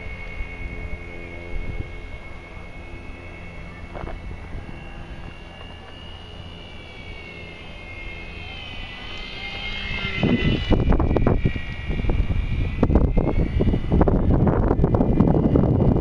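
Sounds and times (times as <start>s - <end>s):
model plane propeller whining: 0.0s - 16.0s.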